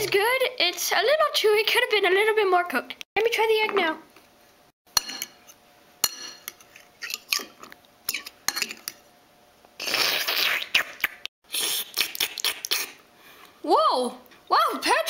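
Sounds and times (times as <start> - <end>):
fork scraping across plate: 5.0 - 9.0.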